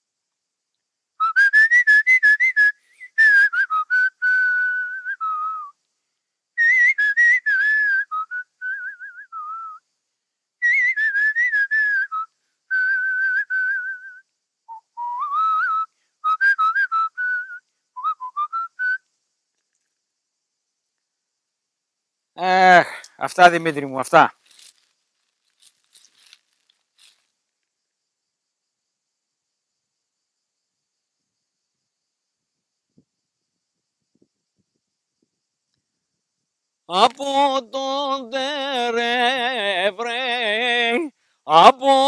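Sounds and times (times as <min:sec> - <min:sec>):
man whistling a tune: 0:01.2 - 0:05.8, 0:06.6 - 0:09.8, 0:10.6 - 0:19.1.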